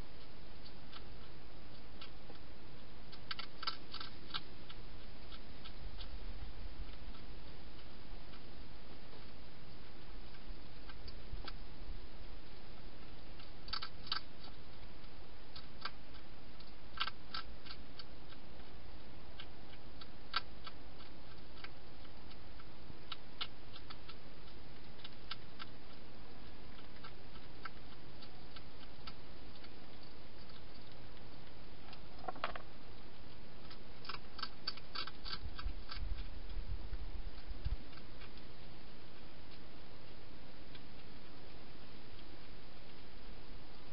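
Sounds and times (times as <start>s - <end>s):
hedgehog chewing food: 0.0s - 43.9s.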